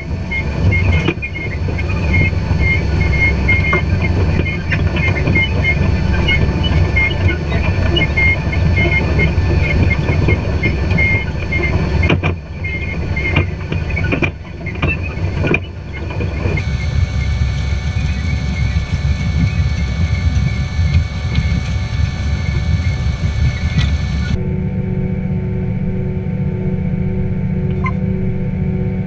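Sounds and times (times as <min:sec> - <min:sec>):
tractor engine rumble: 0:00.0 - 0:24.4
knocks and rattles: 0:00.6 - 0:24.4.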